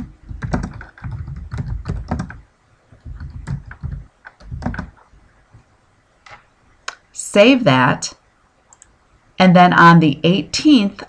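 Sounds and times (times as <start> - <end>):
typing on computer keyboard: 0.0 - 2.4, 3.0 - 5.0.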